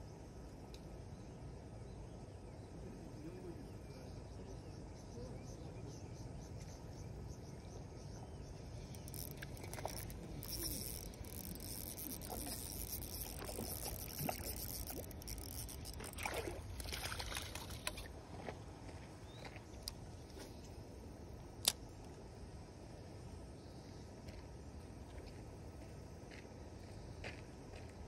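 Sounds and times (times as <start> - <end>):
fishing reel clicking: 8.9 - 18.1, 21.6 - 21.8
fish splashing in water: 9.0 - 18.1.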